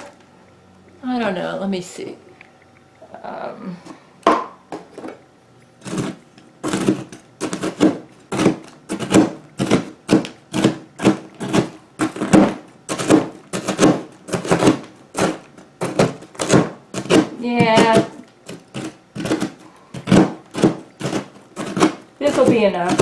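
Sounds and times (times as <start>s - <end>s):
knife chopping on plastic mat: 5.8s - 23.0s.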